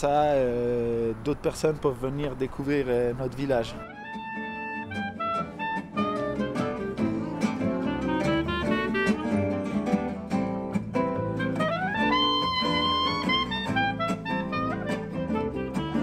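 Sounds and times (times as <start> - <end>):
clarinet playing jazzy melody: 3.8 - 10.0, 11.2 - 16.0
strummed acoustic guitars: 3.8 - 16.0.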